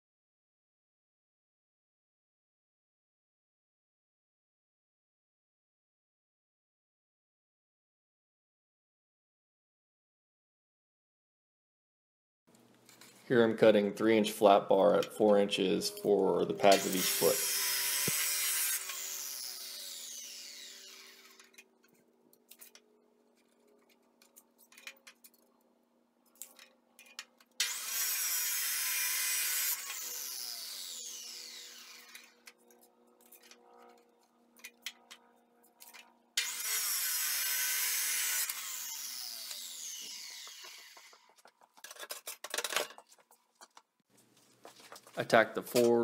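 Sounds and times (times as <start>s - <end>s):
saw motor winding down whine: 15.8s - 21.6s, 27.6s - 32.6s, 36.4s - 41.3s
chop saw cutting steel: 15.8s - 21.7s, 27.6s - 33.6s, 36.4s - 41.4s.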